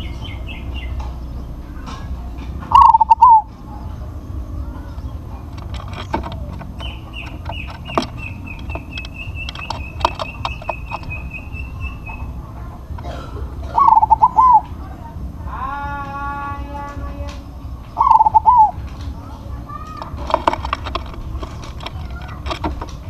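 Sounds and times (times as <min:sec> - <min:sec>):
bird call: 0:00.0 - 0:14.9, 0:17.9 - 0:18.8
dove cooing: 0:00.0 - 0:23.0
fast high repeated bird notes: 0:02.6 - 0:05.4, 0:06.8 - 0:12.9, 0:13.7 - 0:14.7, 0:17.9 - 0:18.8
scattered clicks: 0:04.9 - 0:13.1, 0:16.0 - 0:23.0.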